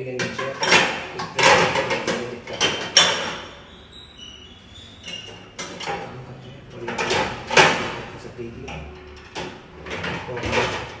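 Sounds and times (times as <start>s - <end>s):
steel dishes clattering in dishwasher rack: 0.2s - 3.5s, 5.6s - 8.1s, 9.0s - 11.0s.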